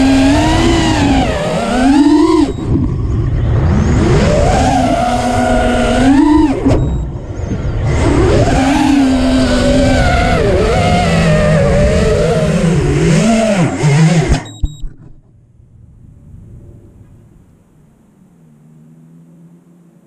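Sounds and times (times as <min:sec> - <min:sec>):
drone motors whining: 0:00.0 - 0:15.1.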